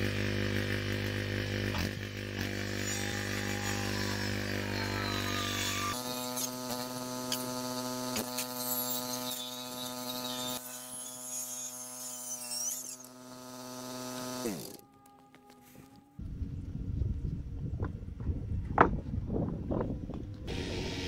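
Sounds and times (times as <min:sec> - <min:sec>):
circular saw whining: 0:00.0 - 0:16.6, 0:19.6 - 0:21.0
saw blade spinning down: 0:01.5 - 0:14.8.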